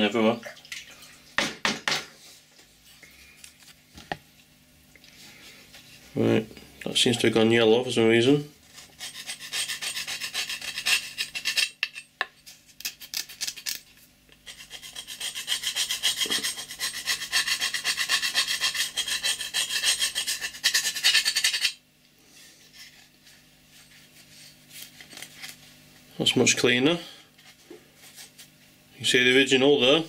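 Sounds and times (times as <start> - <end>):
scraping on steel axe head: 8.7 - 12.5, 14.4 - 21.8.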